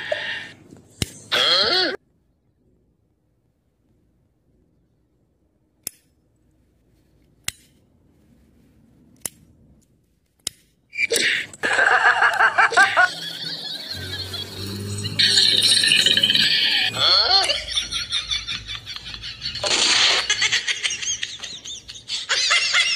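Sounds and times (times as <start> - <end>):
wavering pitched cries: 11.0 - 19.2.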